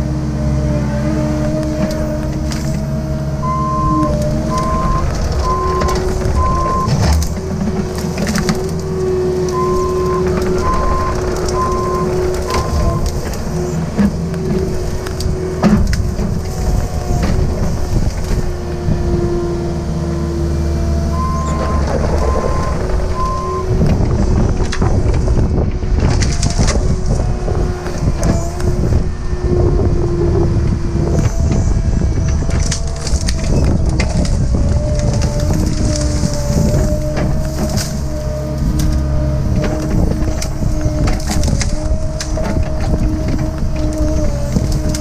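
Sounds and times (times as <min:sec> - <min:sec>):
excavator diesel engine: 0:00.0 - 0:45.0
hydraulic whine: 0:00.0 - 0:45.0
branches snapping: 0:04.1 - 0:18.6, 0:26.0 - 0:28.8, 0:31.0 - 0:45.0.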